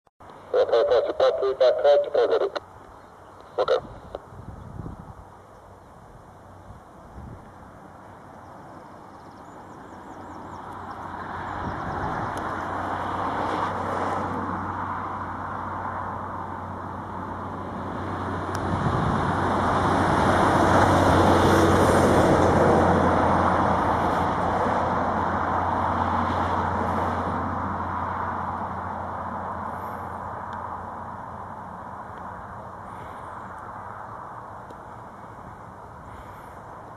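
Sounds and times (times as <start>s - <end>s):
jet engines roaring: 0.3s - 2.8s, 16.5s - 30.2s.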